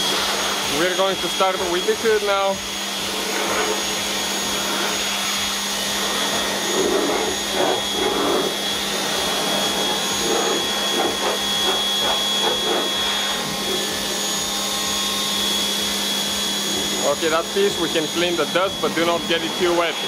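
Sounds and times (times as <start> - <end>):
water jet hissing on metal: 0.0 - 14.3
power washer motor hum: 0.0 - 20.0.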